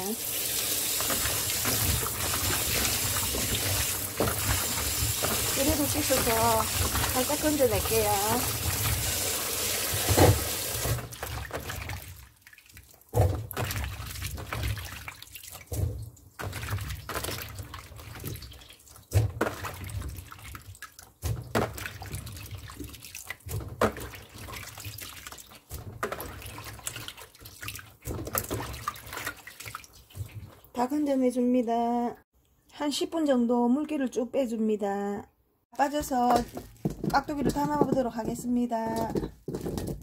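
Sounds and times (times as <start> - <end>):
water dripping: 0.0 - 30.8
hands splashing in water: 0.9 - 30.8.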